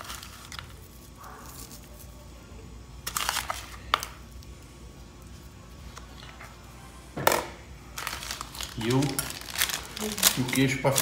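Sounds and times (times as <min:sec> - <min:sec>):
low steady hum: 0:00.0 - 0:11.0
herbs rustling onto pasta: 0:07.9 - 0:11.0.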